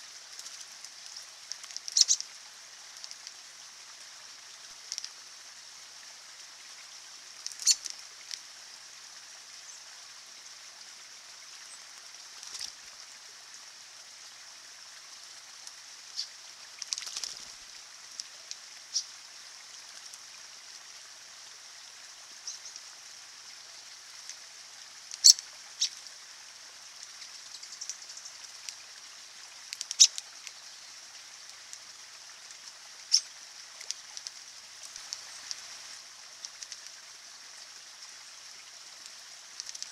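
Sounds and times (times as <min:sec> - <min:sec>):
stream trickling over rocks: 0:00.0 - 0:39.9
birds splashing in water: 0:15.8 - 0:17.6.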